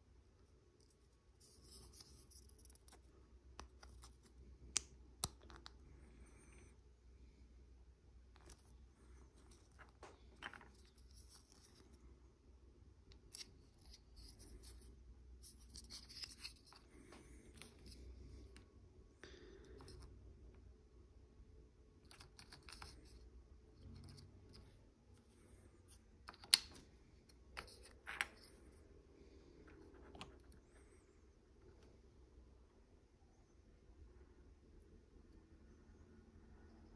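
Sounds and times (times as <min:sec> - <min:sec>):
plastic parts scraping and rustling: 0:08.3 - 0:12.0, 0:13.1 - 0:18.6, 0:22.0 - 0:28.8.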